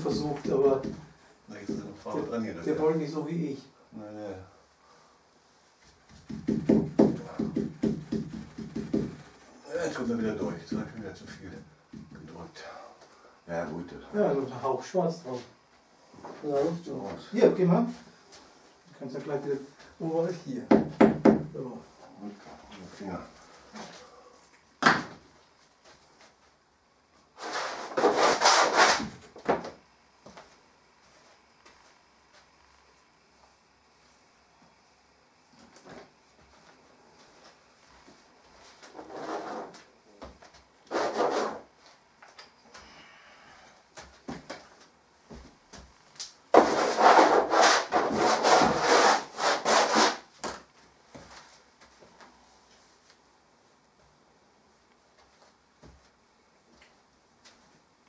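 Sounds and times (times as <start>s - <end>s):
scraping on a painted board: 27.4s - 29.1s, 38.9s - 39.8s, 40.9s - 41.7s, 46.6s - 50.3s.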